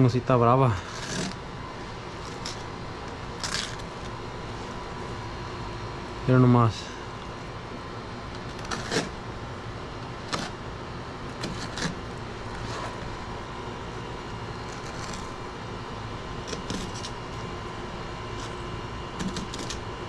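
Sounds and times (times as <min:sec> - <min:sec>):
background hum: 0:00.0 - 0:20.0
knife cracking through scaled hide: 0:01.0 - 0:01.4, 0:08.5 - 0:09.2, 0:11.4 - 0:12.0.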